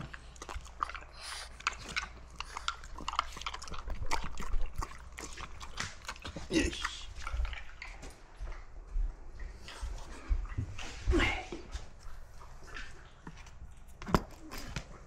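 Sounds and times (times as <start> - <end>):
dogs chewing crunchy treats: 0.0 - 15.0.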